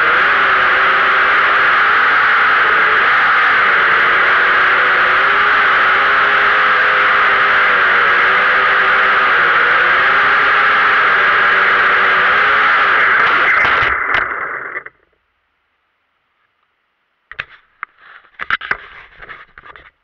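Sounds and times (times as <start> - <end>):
knocks of drone crashing: 12.8 - 15.0.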